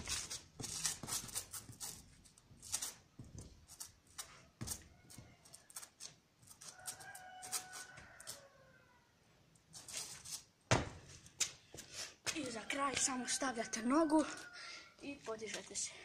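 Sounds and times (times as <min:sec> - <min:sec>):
sneakers scraping concrete wall: 0:00.0 - 0:05.3.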